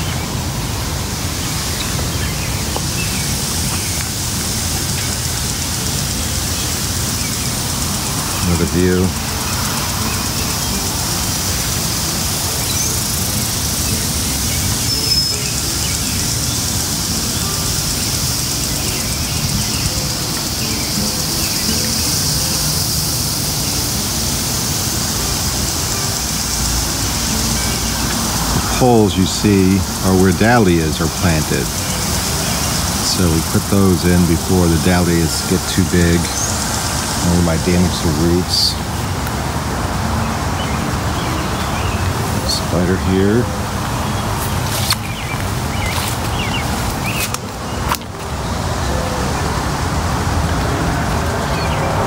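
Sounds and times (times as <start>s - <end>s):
lawn sprinklers hissing: 0.0s - 52.0s
faint bird chirps: 12.6s - 16.7s.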